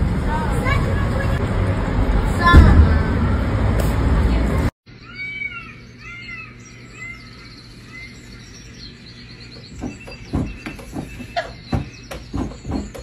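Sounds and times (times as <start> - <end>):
birds chirping on television: 4.9 - 13.0.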